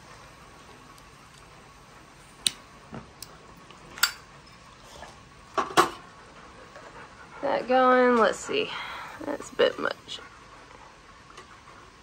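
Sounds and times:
faint gas hiss: 0:00.0 - 0:12.0
burner igniter clicks: 0:02.4 - 0:03.4.

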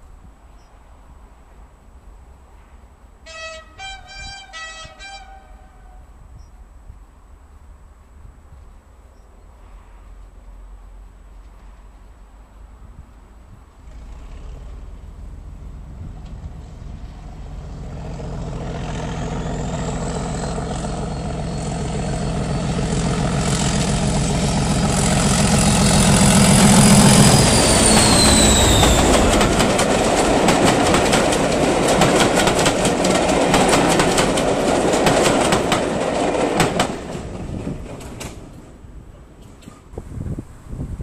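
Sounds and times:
diesel locomotive engine passing: 0:10.0 - 0:41.0
train wheels clicking over rail joints: 0:18.9 - 0:40.0
high whistle dropping in pitch: 0:25.7 - 0:29.3.

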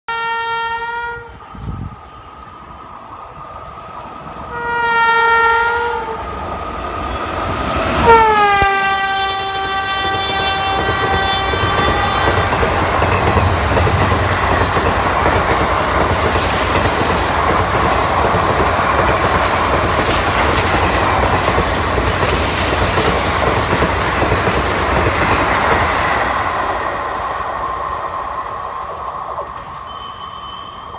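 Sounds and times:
locomotive horn blasts: 0:00.1 - 0:01.4, 0:04.5 - 0:06.3, 0:08.0 - 0:12.5
train coaches rumbling on rails: 0:00.2 - 0:30.9.

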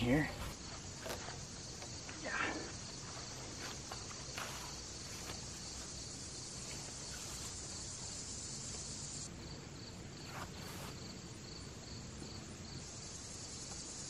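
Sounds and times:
faint rustle: 0:00.0 - 0:08.2, 0:10.2 - 0:11.3
insects trilling: 0:00.0 - 0:14.0.

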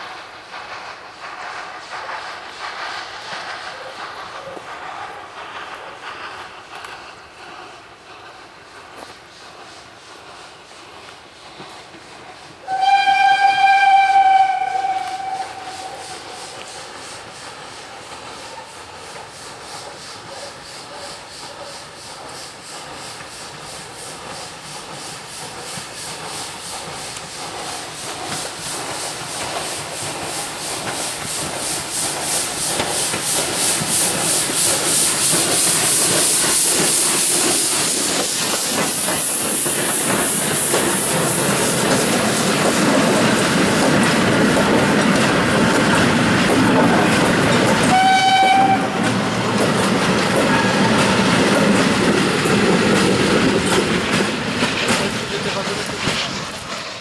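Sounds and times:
steam locomotive exhaust beating: 0:00.0 - 0:57.0
train wheels rumbling on rails: 0:00.0 - 0:57.0.

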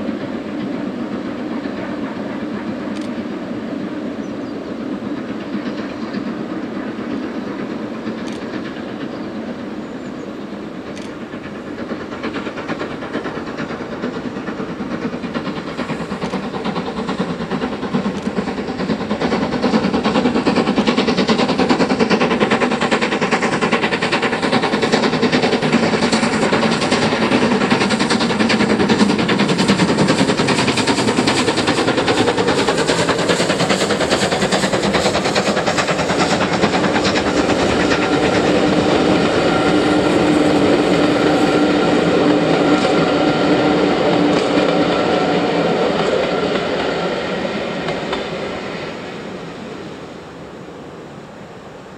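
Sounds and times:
steam locomotive hauling train: 0:00.0 - 0:51.9.

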